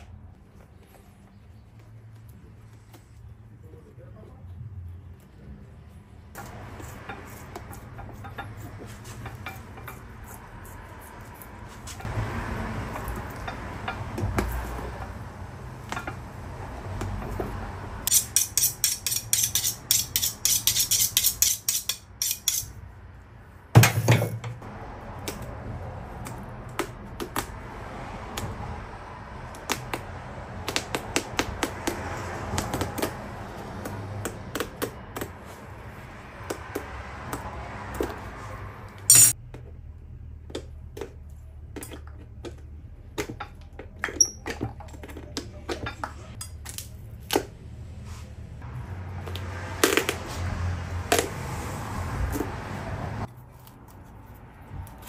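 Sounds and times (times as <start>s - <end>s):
tools clicking and clinking: 18.1s - 22.8s, 39.1s - 39.4s.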